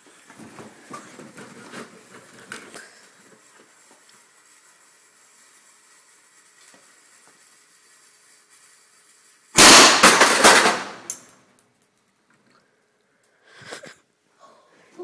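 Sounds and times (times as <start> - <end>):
mini cannon bang: 9.6 - 11.1
quick run of cracks: 9.6 - 11.3.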